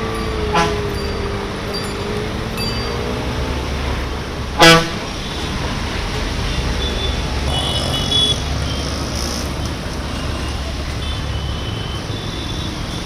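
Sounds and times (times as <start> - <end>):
motorbike engines rumbling: 0.0 - 13.0
vehicle horn beep: 6.7 - 9.4.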